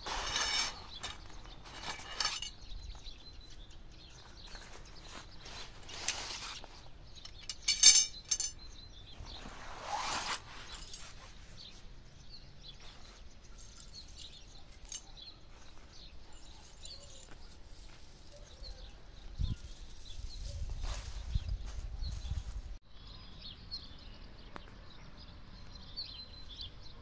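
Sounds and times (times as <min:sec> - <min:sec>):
metal rods clinking: 0:00.0 - 0:02.8, 0:05.6 - 0:08.7, 0:13.5 - 0:15.2, 0:16.3 - 0:18.9
canvas bag rustling: 0:04.2 - 0:06.9, 0:09.2 - 0:11.7.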